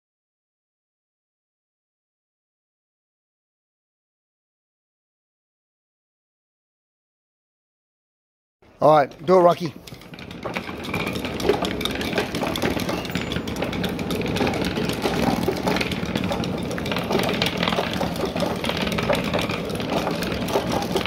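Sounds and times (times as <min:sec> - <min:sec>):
wooden slats clattering: 0:09.2 - 0:21.0.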